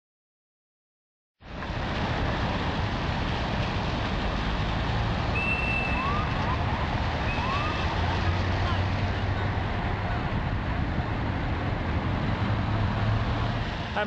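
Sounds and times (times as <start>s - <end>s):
vehicle engines: 1.4s - 14.0s
high whistles: 5.4s - 6.3s, 7.2s - 7.9s.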